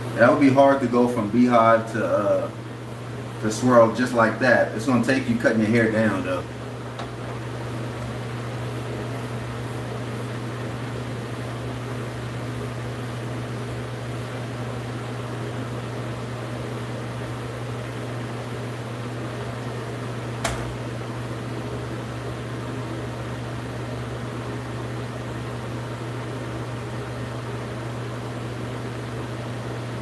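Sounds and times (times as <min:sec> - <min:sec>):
fan humming: 0:00.0 - 0:30.0
sharp click: 0:20.4 - 0:20.8.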